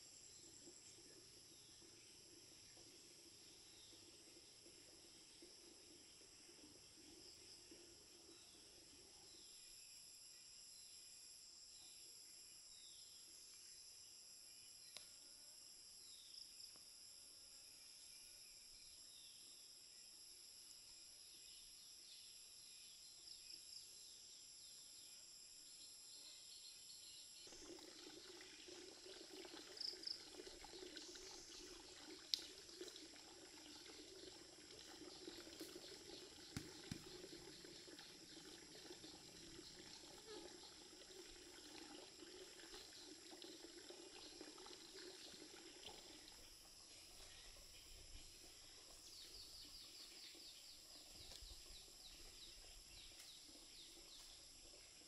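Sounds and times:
faint chirps and clicks: 0:14.8 - 0:15.2, 0:29.8 - 0:40.8, 0:45.2 - 0:55.0
insects trilling: 0:17.4 - 0:55.0.

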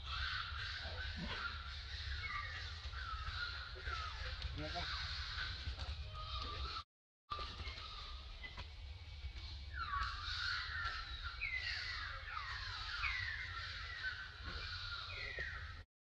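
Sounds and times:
infant monkey crying: 0:00.0 - 0:05.5.

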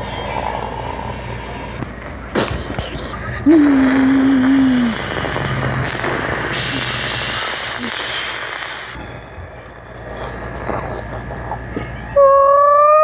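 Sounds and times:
faint hiss: 0:02.3 - 0:09.1.

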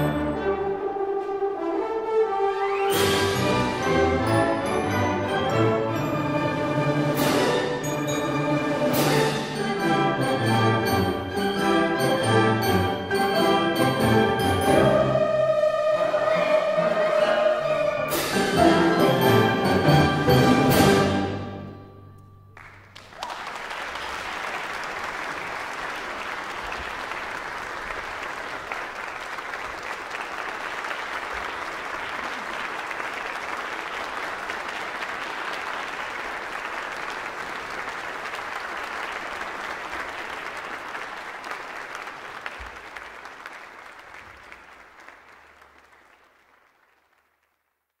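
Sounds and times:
audience applauding: 0:22.6 - 0:47.9.

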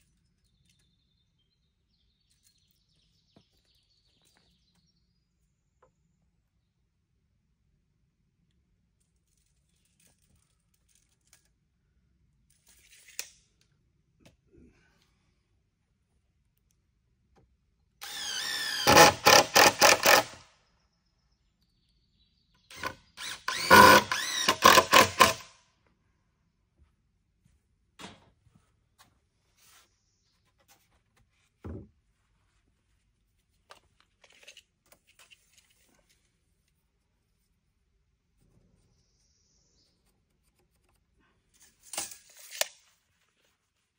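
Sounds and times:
cordless drill driving screws: 0:18.0 - 0:20.4, 0:22.7 - 0:25.5.

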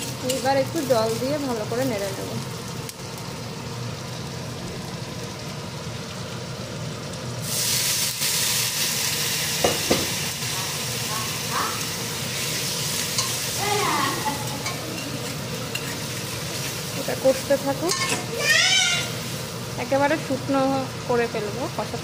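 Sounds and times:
masala frying in oil: 0:00.0 - 0:22.0
water hissing in hot pan: 0:00.0 - 0:22.0
spatula knocking on pan: 0:09.6 - 0:10.2.

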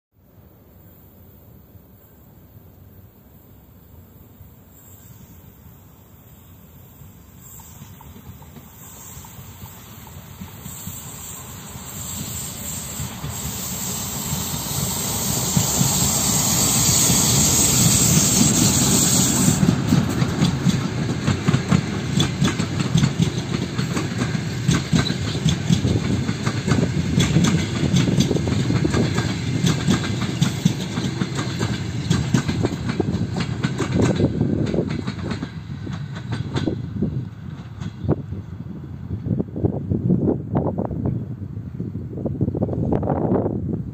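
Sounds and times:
locomotive rushing hiss: 0:00.3 - 0:43.9
train coaches rumbling: 0:04.6 - 0:43.9
wheels clacking over rail joints: 0:17.8 - 0:38.1.

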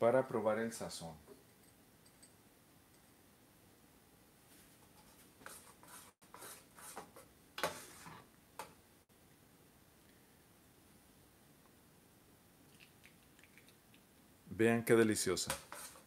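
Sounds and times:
metal spoon scraping saucepan: 0:15.5 - 0:16.0.

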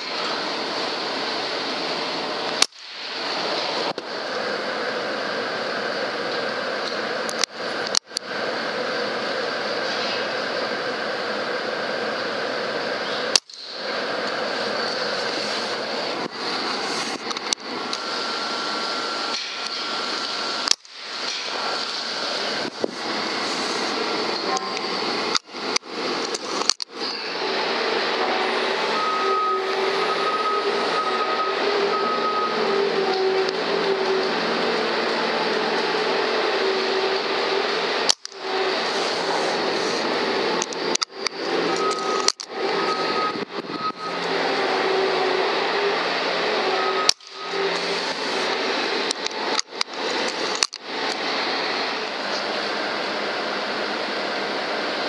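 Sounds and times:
steady rushing noise: 0:00.0 - 0:31.9, 0:32.7 - 0:55.0
fan hiss and hum: 0:00.0 - 0:55.0
faint high whistle: 0:28.3 - 0:33.5, 0:41.7 - 0:45.1, 0:46.6 - 0:47.7.

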